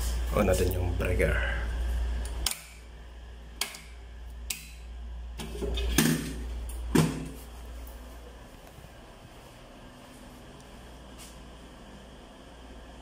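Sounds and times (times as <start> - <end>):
circuit breaker click: 2.2 - 2.8.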